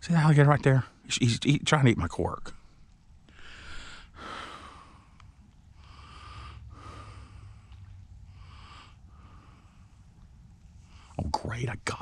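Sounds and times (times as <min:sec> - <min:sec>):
person breathing: 0:03.3 - 0:10.2, 0:10.8 - 0:11.2.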